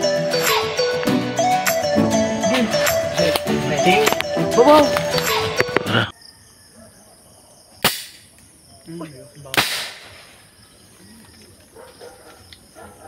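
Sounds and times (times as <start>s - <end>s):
night insects chirring: 5.1s - 13.0s
rifle shots: 9.6s - 10.3s.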